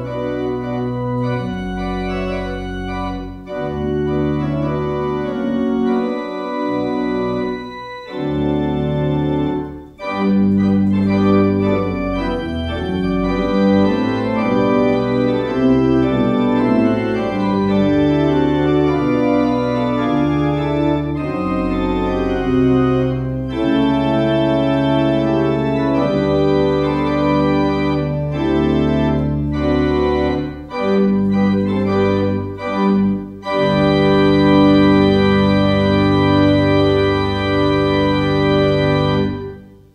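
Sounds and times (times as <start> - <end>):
organ chords: 0.0 - 39.9.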